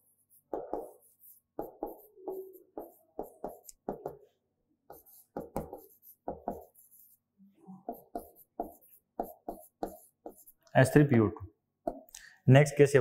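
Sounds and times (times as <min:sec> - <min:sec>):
writing taps on a board: 0:00.5 - 0:01.0, 0:04.9 - 0:06.7, 0:07.9 - 0:10.4.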